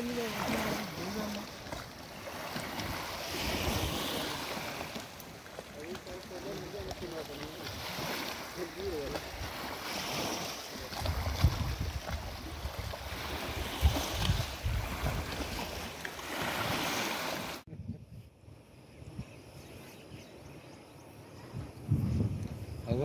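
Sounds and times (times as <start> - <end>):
wind buffeting microphone: 0.0 - 17.0, 21.3 - 23.0
river water rushing: 0.0 - 17.6.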